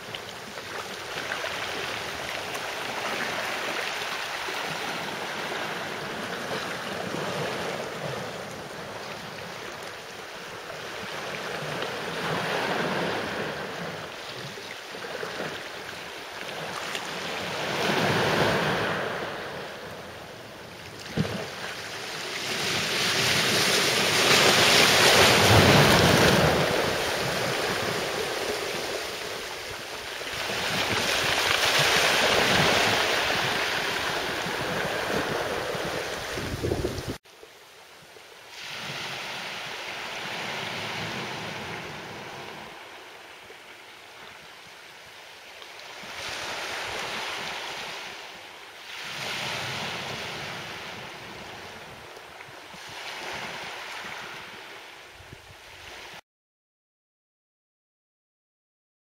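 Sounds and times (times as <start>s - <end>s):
sea waves washing in: 0.0s - 56.2s
wind buffeting microphone: 23.3s - 37.2s.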